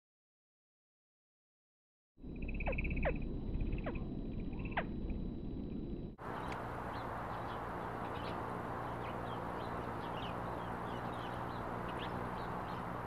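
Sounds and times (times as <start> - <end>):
outdoor noise: 2.2 - 13.0
high bird chirps: 2.3 - 4.9
hummingbird wing hum: 2.3 - 13.0.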